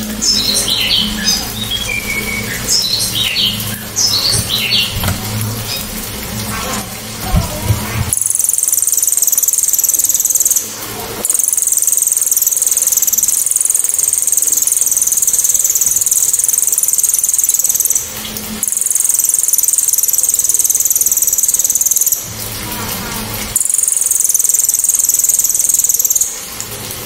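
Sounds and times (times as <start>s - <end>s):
songbird high-pitched trills: 0.0s - 5.9s, 8.2s - 22.3s, 23.6s - 26.4s.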